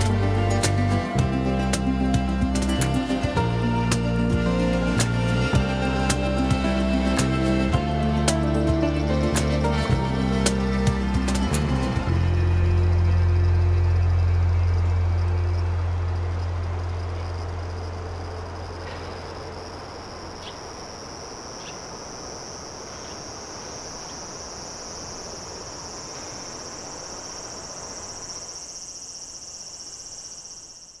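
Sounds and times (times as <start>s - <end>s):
low music: 0.0s - 19.1s
high-pitched insect chorus: 0.0s - 31.0s.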